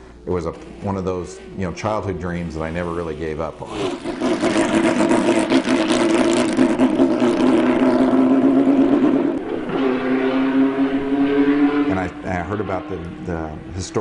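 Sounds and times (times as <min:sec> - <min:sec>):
race car engine running hard: 0:04.0 - 0:13.8.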